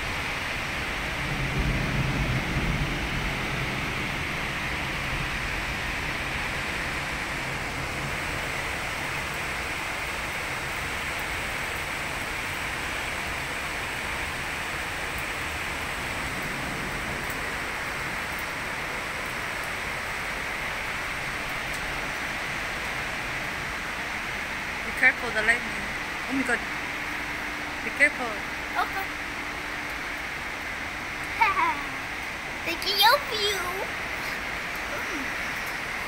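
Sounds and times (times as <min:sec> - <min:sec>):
heavy rain pouring: 0:00.0 - 0:36.0.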